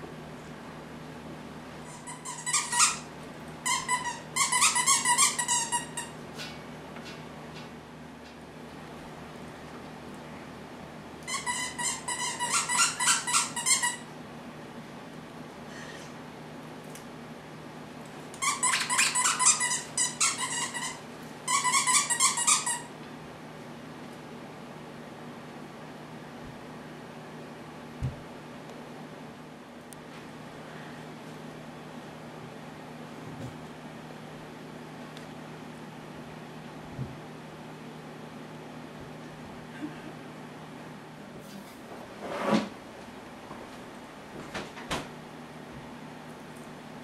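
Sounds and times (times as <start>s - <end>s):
squeaky toy squeaking: 1.8s - 6.1s, 11.3s - 14.0s, 18.4s - 22.9s.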